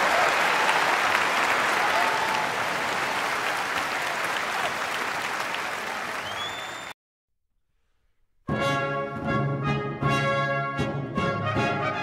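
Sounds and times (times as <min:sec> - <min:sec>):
crowd applauding: 0:00.0 - 0:07.0
rising whistle: 0:06.2 - 0:07.0.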